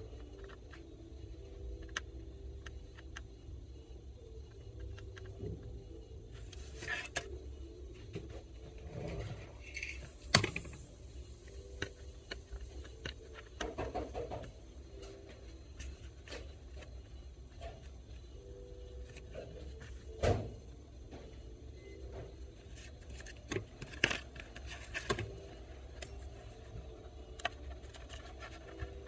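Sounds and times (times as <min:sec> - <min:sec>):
faint low hum: 0:00.0 - 0:29.0
small clicks taps and scrapes: 0:22.8 - 0:29.0.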